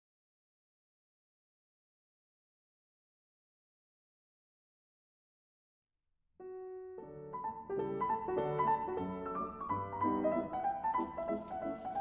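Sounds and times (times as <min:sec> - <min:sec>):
piano music: 0:06.4 - 0:12.0.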